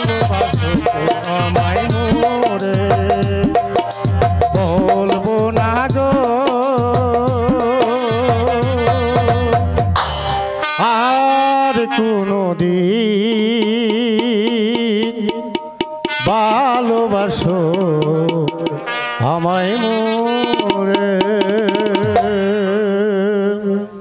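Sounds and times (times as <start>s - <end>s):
drum strokes: 0.0s - 10.8s, 13.2s - 19.2s, 20.4s - 22.7s.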